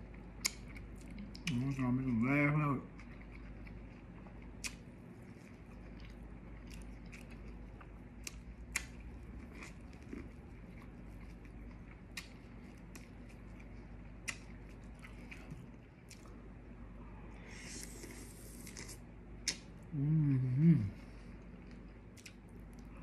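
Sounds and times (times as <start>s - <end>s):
steady low hum: 0.0s - 23.0s
person chewing corn on the cob: 2.9s - 16.4s, 21.5s - 23.0s.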